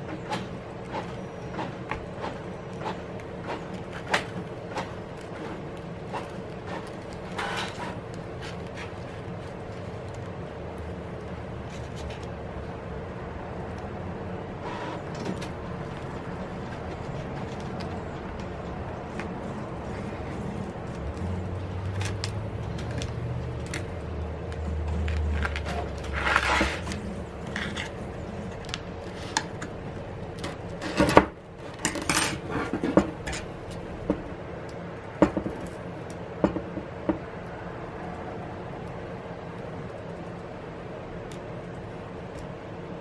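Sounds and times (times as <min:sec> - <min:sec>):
prying tools clicking and scraping: 0:00.0 - 0:09.7, 0:14.6 - 0:34.2.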